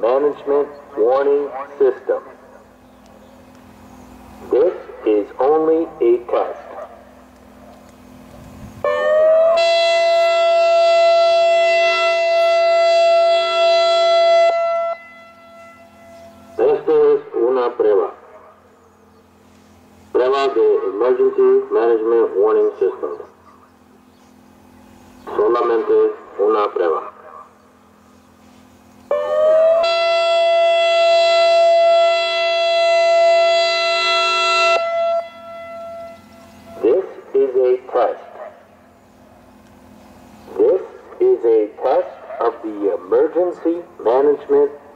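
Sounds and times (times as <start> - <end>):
recorded voice message: 0.0 - 2.5, 4.4 - 6.9, 16.6 - 18.4, 20.1 - 23.4, 25.3 - 27.5, 36.8 - 38.5, 40.5 - 44.8
electronic siren tone: 8.8 - 17.3, 29.1 - 37.1.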